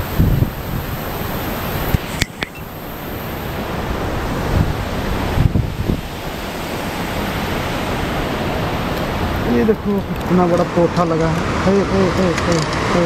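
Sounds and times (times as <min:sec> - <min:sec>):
flowing river water: 0:00.0 - 0:13.0
wind on microphone: 0:00.0 - 0:13.0
sharp click: 0:01.9 - 0:02.7.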